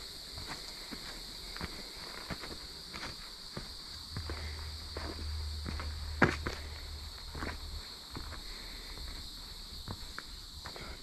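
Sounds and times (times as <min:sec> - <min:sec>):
steady high-pitched hum: 0:00.0 - 0:11.0
footsteps on dirt and leaves: 0:00.3 - 0:11.0
low rumble: 0:04.1 - 0:07.8.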